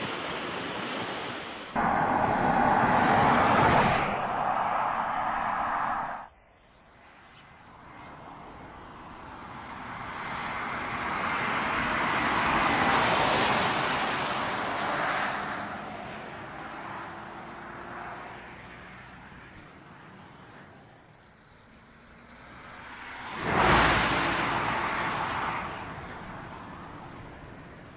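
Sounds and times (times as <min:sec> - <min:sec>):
car driving past at speed: 0:01.8 - 0:06.3, 0:22.2 - 0:26.0.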